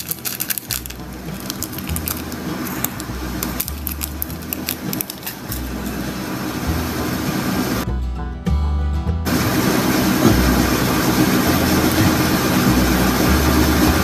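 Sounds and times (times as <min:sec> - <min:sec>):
plastic packet crinkling: 0:00.0 - 0:05.9
background music with bass line: 0:00.0 - 0:14.0.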